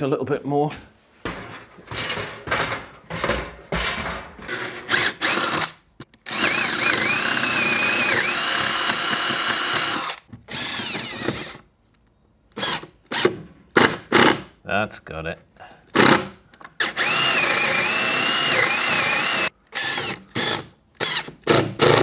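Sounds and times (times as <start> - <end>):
power drill drilling into wood: 4.9 - 5.7, 6.3 - 11.6, 16.8 - 22.0.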